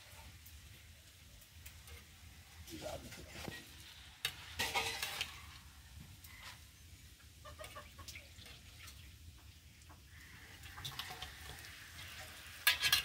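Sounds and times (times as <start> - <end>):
metal skimmer stirring syrup: 10.7 - 13.0.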